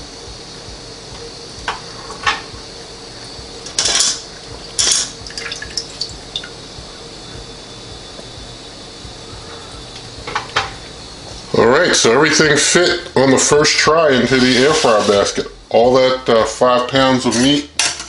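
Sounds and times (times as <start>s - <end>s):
liquid splashing and dripping: 5.2s - 6.6s.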